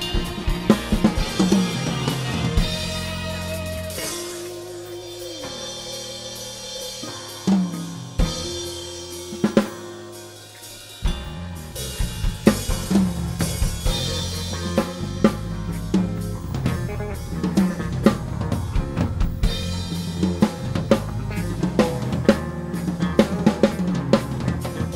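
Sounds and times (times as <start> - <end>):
acoustic drum kit: 0.0 - 24.9
backing track chords: 0.0 - 24.9.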